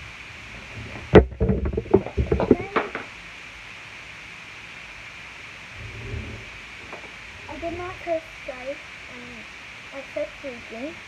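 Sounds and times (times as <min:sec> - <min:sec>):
handling noise on microphone: 0:00.5 - 0:03.1.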